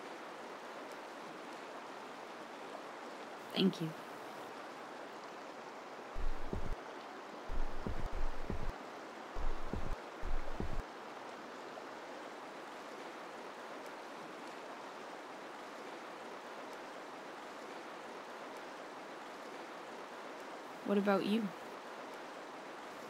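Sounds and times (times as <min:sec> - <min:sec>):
river rapids rushing: 0:06.2 - 0:06.8, 0:07.5 - 0:08.7, 0:09.4 - 0:10.8.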